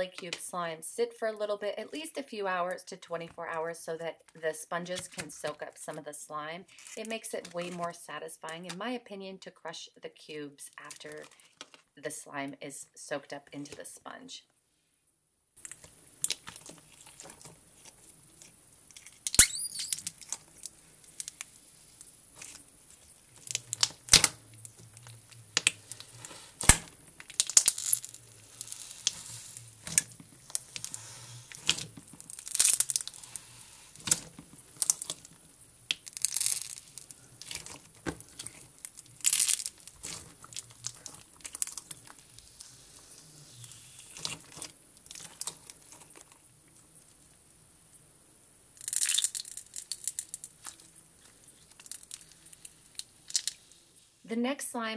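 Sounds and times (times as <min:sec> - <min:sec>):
slime squeezed with wet crackles: 0:15.6 - 0:46.5, 0:48.8 - 0:53.6.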